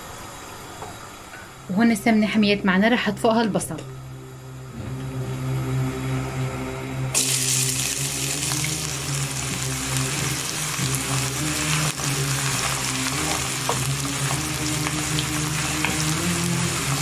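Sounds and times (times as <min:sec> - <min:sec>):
onion sizzling in hot oil: 0:07.2 - 0:17.0.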